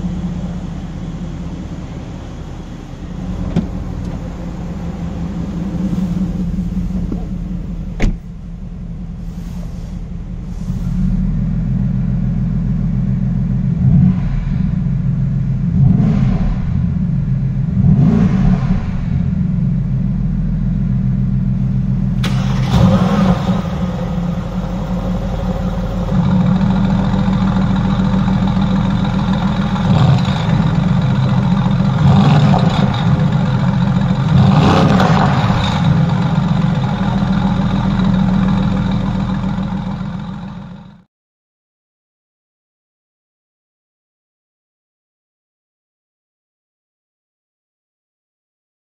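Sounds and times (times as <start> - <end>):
car engine idling and revving: 0.0 - 41.1.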